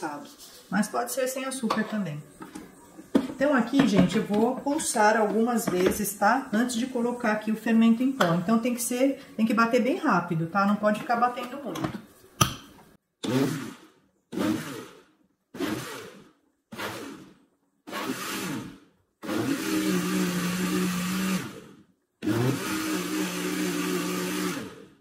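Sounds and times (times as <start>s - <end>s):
blender running: 13.2s - 25.0s.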